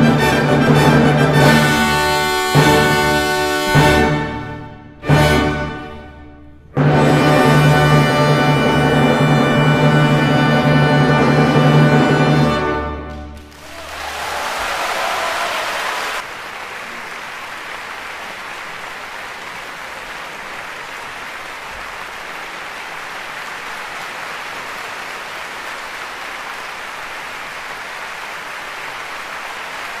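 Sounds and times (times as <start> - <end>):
audience applauding: 13.1 - 30.0.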